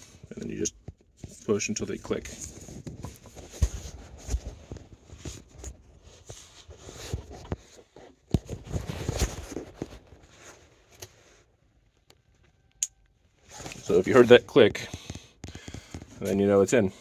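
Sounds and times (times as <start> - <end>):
phone rubbing against clothing: 13.4 - 16.8.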